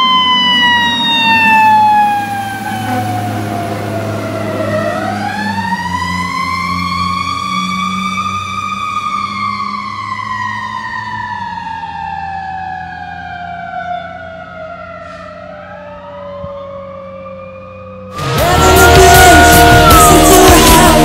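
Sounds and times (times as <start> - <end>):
fire truck siren wailing: 0.0 - 21.0
second siren rising: 0.0 - 21.0.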